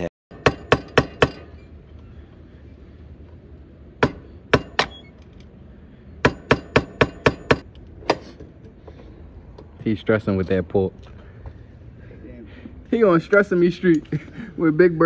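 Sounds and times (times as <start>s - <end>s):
metal hammer blows: 6.2s - 8.4s.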